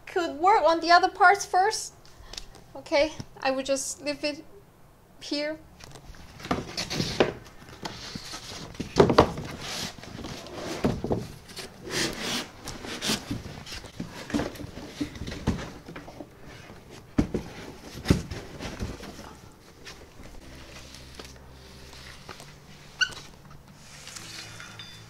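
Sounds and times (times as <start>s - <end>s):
cardboard and foam rustling and scraping: 6.1s - 24.8s.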